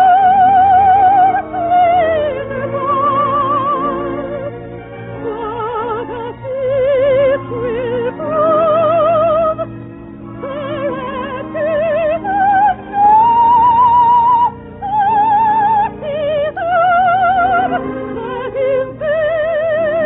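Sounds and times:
orchestra: 0:00.0 - 0:20.0
soprano singing: 0:00.0 - 0:20.0.

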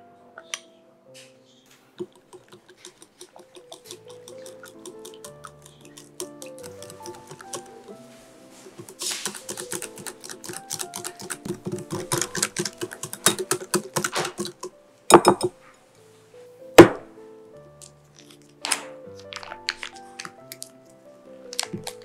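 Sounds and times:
soft background music: 0:00.0 - 0:22.0
whisk clicking against glass bowl: 0:02.0 - 0:08.0, 0:08.6 - 0:15.5.

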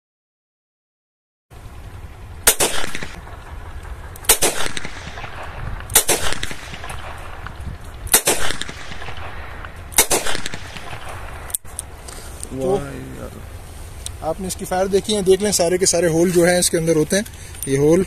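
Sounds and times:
revolver shots with echo: 0:02.5 - 0:11.6.

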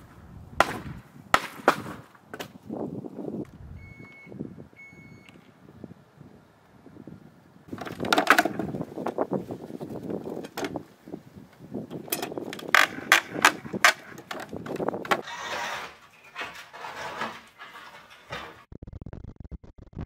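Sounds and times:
wooden boards scraping: 0:00.0 - 0:02.6, 0:07.7 - 0:10.8, 0:12.0 - 0:18.7
wooden boards knocking and clattering: 0:00.6 - 0:02.6, 0:07.7 - 0:09.2, 0:10.3 - 0:10.8, 0:12.0 - 0:15.2.

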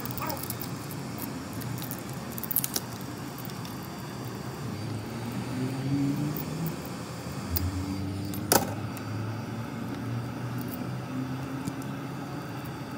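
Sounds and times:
heat gun blowing: 0:03.5 - 0:09.2.

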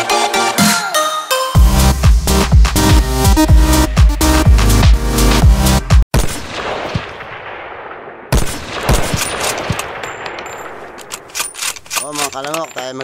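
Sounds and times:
electronic dance music: 0:00.0 - 0:06.0.

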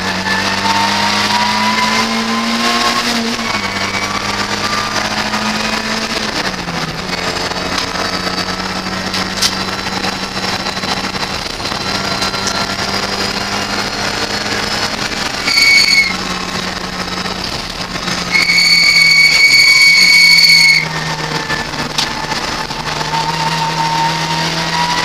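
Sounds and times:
race car engine running: 0:00.0 - 0:25.0
tyres squealing: 0:09.1 - 0:16.3, 0:18.0 - 0:25.0.

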